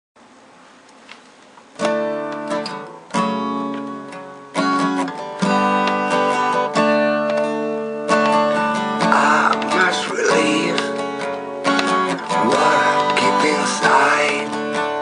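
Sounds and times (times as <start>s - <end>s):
acoustic guitar chords strummed: 1.8s - 15.0s.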